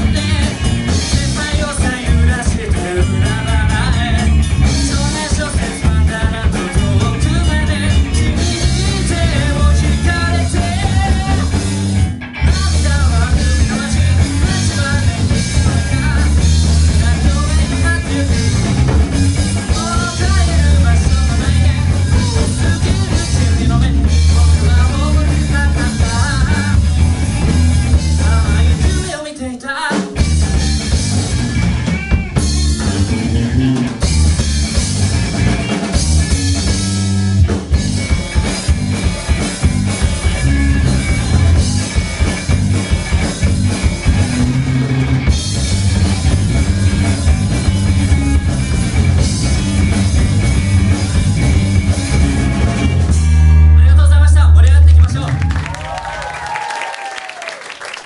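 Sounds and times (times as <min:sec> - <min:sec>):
person singing: 0:00.0 - 0:11.7, 0:12.5 - 0:18.8, 0:19.6 - 0:26.9, 0:27.9 - 0:30.2
live rock band playing: 0:00.0 - 0:58.0.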